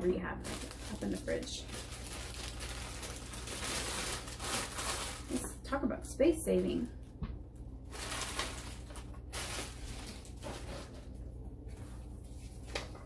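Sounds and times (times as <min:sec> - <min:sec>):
steady low hum: 0:00.0 - 0:13.0
packaging rustling swishes: 0:07.9 - 0:11.2.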